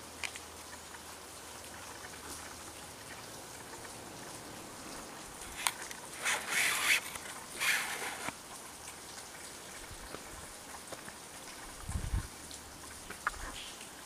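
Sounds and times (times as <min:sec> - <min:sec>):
faint outdoor hiss: 0:00.0 - 0:14.0
light ticks: 0:00.2 - 0:01.0.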